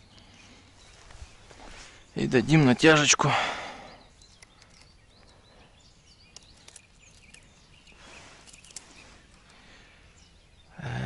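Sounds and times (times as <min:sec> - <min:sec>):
faint bird chirps: 0:00.0 - 0:11.0
light clicks: 0:04.2 - 0:05.4, 0:06.2 - 0:09.6.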